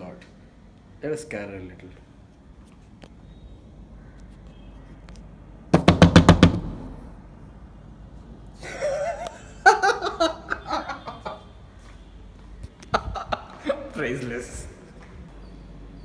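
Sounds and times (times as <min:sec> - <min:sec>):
rapid loud knocks: 0:05.7 - 0:07.0
people laughing: 0:08.6 - 0:11.5.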